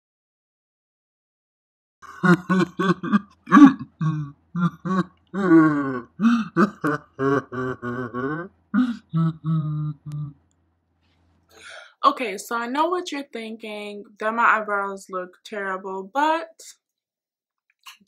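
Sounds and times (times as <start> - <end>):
person humming short notes: 2.5 - 10.4.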